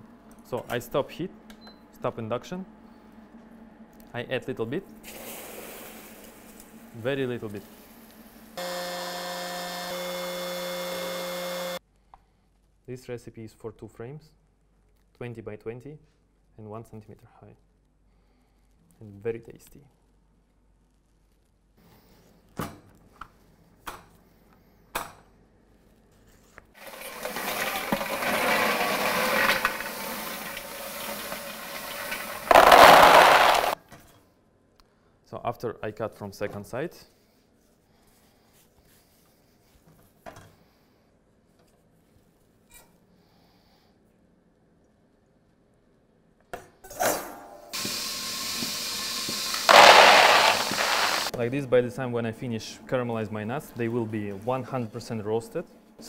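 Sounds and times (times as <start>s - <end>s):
candies pouring out: 26.8s - 33.8s, 49.5s - 51.3s
candies rattling in a steel bowl: 26.8s - 33.8s, 49.7s - 51.3s.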